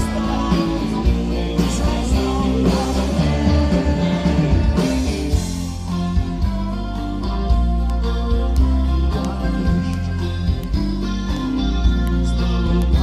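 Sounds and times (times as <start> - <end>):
person singing: 0.0 - 5.7, 8.6 - 13.0
rock band playing live: 0.0 - 13.0.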